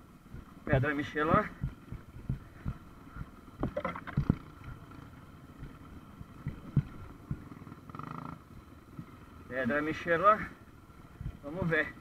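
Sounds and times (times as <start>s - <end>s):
dirt bike engine at low revs: 0.0s - 12.0s
bike knocking over rocks: 3.6s - 4.5s.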